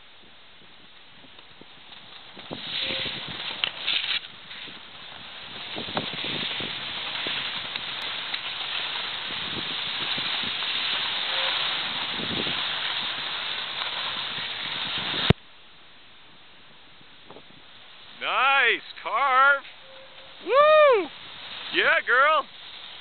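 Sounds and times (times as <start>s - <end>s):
wind rushing past microphone: 0.2s - 8.0s, 9.1s - 13.4s, 14.1s - 15.4s
skis sliding on packed snow: 0.6s - 15.4s, 17.2s - 23.0s.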